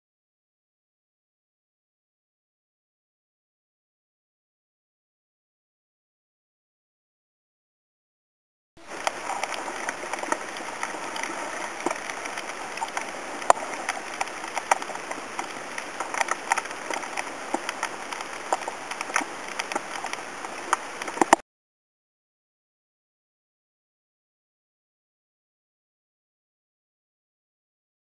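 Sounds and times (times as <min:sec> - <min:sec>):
underwater crackling hiss: 0:08.8 - 0:21.4
sharp underwater clicks: 0:08.9 - 0:21.4.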